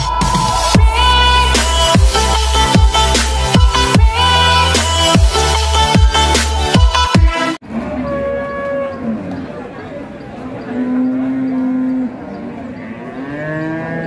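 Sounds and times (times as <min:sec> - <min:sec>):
electronic music: 0:00.0 - 0:07.6
cattle mooing: 0:10.6 - 0:14.0.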